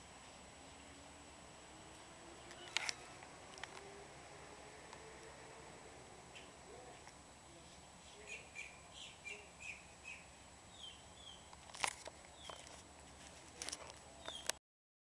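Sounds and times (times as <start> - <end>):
outdoor background noise: 0.0 - 14.6
small birds chirping: 6.3 - 6.6, 8.1 - 11.5, 12.3 - 12.7, 14.2 - 14.6.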